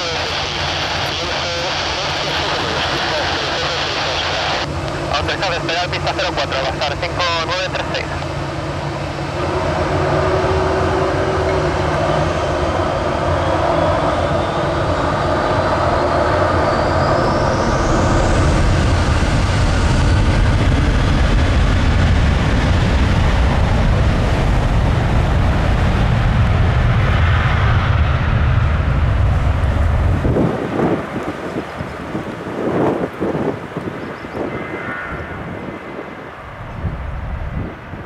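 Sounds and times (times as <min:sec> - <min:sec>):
jet engines spooling up: 0:00.0 - 0:30.4
rising jet engine whine: 0:00.0 - 0:38.0.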